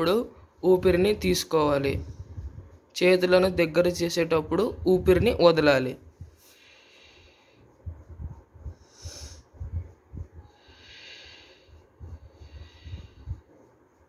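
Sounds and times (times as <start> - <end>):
woman breathing deeply: 6.3 - 13.9.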